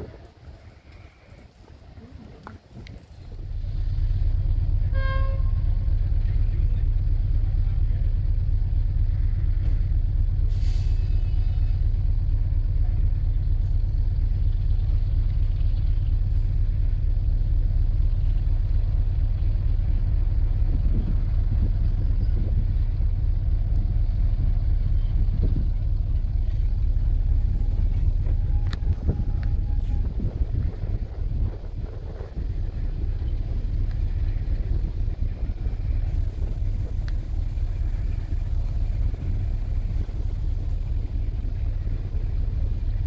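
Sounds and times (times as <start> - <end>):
locomotive diesel engine running: 0.0 - 43.0
air brake hiss: 10.5 - 11.9.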